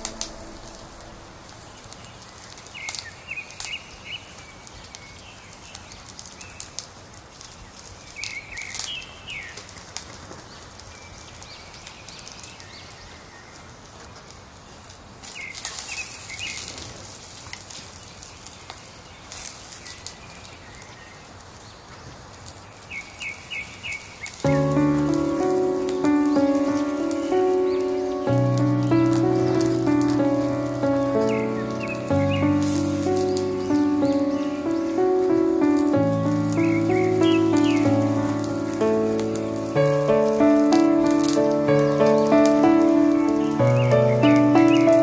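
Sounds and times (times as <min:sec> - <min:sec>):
wood fire crackling: 0:00.0 - 0:45.0
birds chirping: 0:22.9 - 0:45.0.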